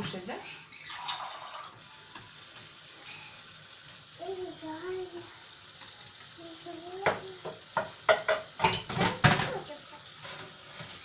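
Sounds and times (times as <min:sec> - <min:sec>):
plastic dishes clattering in sink: 0:07.8 - 0:11.0.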